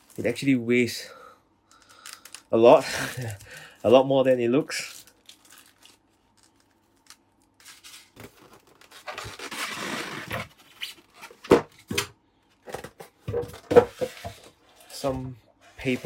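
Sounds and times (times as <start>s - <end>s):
packaging rustling: 1.9s - 11.5s.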